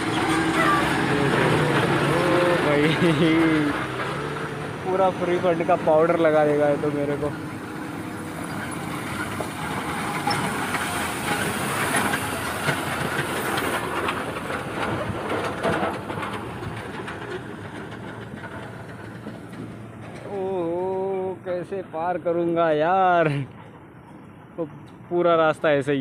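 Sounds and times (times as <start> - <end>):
truck engine driving past: 0.0 - 24.8
knocks and rattles: 5.7 - 21.1.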